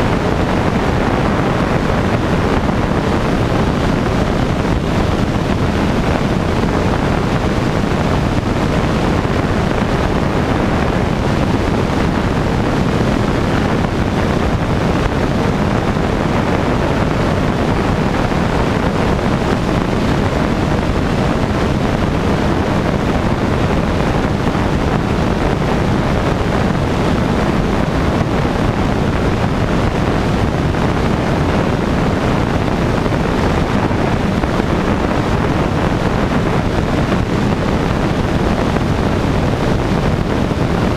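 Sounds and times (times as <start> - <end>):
aircraft engine and propeller drone: 0.0 - 40.9
wind rushing over camera: 0.0 - 40.9.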